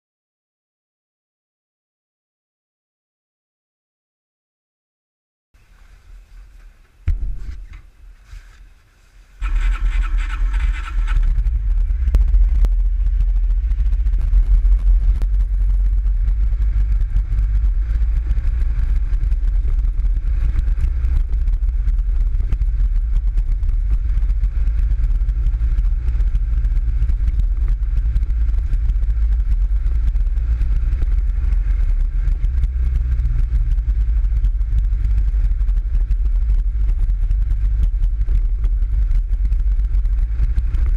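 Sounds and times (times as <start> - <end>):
buggy engine running: 9.4 - 40.9.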